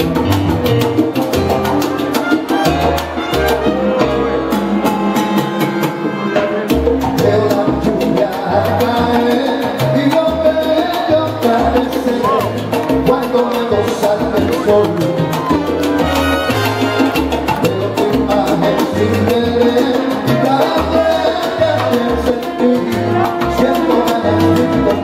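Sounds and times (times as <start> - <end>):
bass line: 0.0 - 25.0
congas: 0.0 - 25.0
salsa band playing: 0.0 - 25.0
brass horns: 1.7 - 8.6, 15.4 - 19.0, 19.8 - 25.0.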